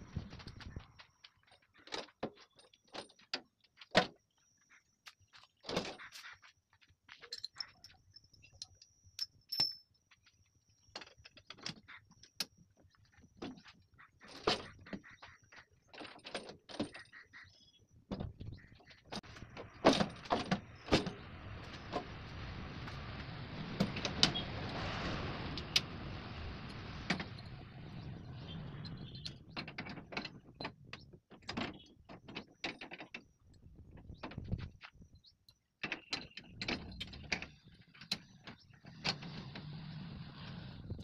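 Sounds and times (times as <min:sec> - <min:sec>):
steady rushing noise: 0:19.2 - 0:29.4.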